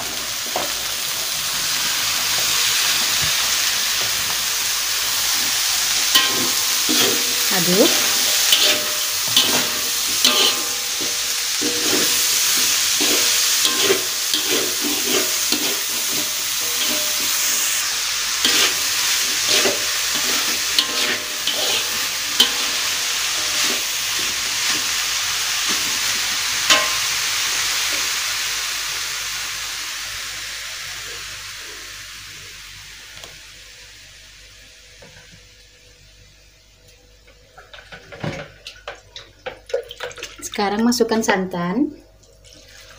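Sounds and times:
vegetables sizzling in oil: 0.0 - 39.0
metal spatula scraping wok: 5.9 - 27.2.

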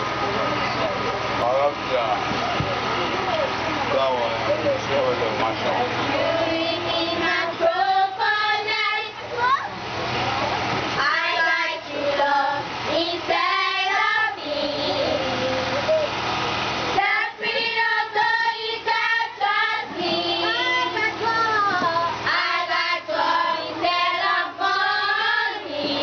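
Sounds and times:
children singing together: 6.2 - 9.2, 11.0 - 15.9, 17.0 - 26.0.

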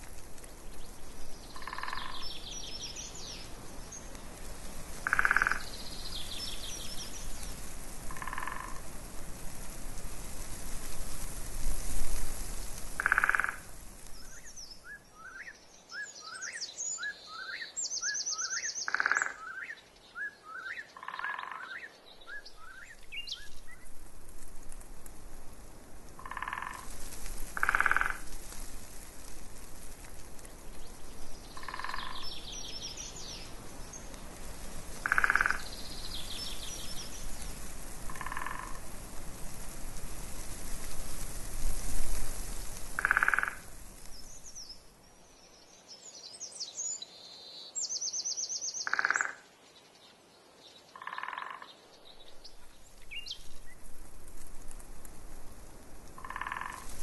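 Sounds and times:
songbirds chirping: 0.0 - 9.0, 12.4 - 24.0, 26.2 - 39.0, 42.1 - 54.4
frogs croaking: 1.5 - 2.6, 5.0 - 6.1, 8.1 - 8.9, 13.0 - 13.7, 18.5 - 19.8, 20.7 - 21.9, 26.2 - 28.3, 31.5 - 33.1, 35.0 - 36.0, 38.1 - 38.9, 43.0 - 43.8, 48.8 - 49.6, 50.9 - 51.9, 56.2 - 57.0.

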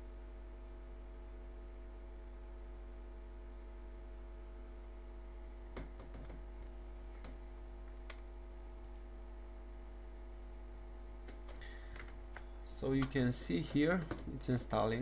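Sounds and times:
faint hum and hiss: 0.0 - 15.0
computer mouse clicks: 8.0 - 9.1.

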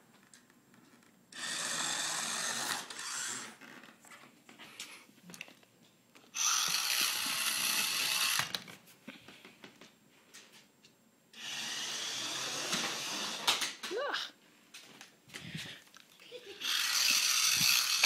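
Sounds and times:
small gear motors running: 1.4 - 3.6, 6.4 - 8.5, 11.4 - 13.4, 16.6 - 18.0.

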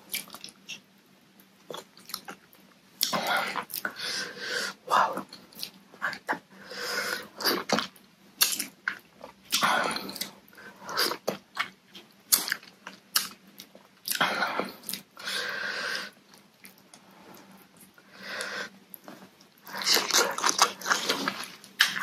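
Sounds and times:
wet chewing: 18.9 - 22.0.

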